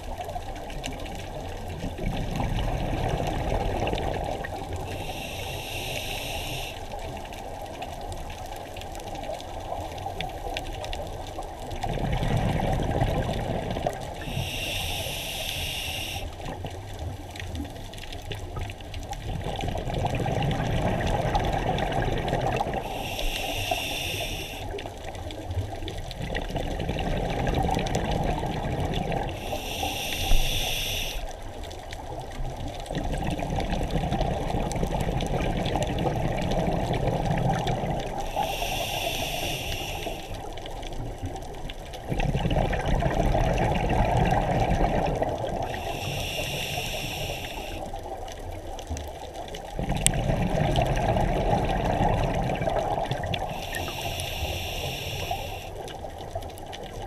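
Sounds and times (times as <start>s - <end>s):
exhaled air bubbling: 0.0s - 57.0s
regulator inhale hiss: 4.8s - 7.2s, 14.2s - 16.4s, 22.8s - 24.8s, 29.3s - 31.4s, 38.2s - 40.5s, 45.7s - 48.1s, 53.5s - 55.9s.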